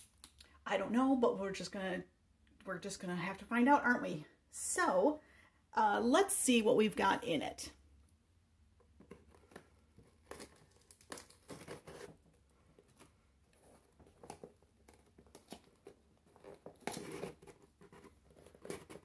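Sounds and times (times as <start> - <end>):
cardboard rustling: 8.9 - 19.0
tape tearing: 9.4 - 13.1, 14.2 - 19.0.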